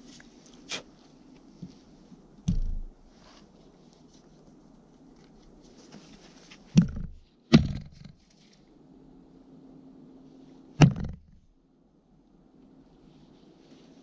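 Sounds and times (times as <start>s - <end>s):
dull thump: 2.4s - 3.0s, 6.7s - 8.2s, 10.8s - 11.5s
axe handle knocking on log: 6.8s - 8.1s, 10.8s - 11.4s.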